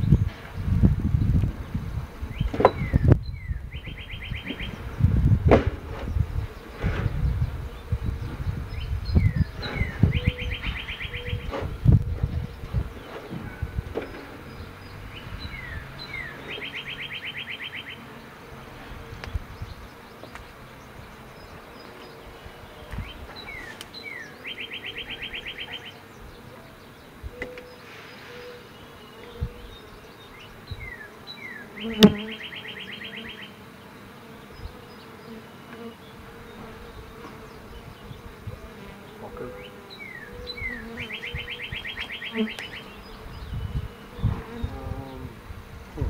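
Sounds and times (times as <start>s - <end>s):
honey bees buzzing: 0.0s - 46.0s
bird singing with trill: 2.3s - 5.2s, 6.0s - 18.1s, 19.2s - 33.6s, 39.1s - 45.3s.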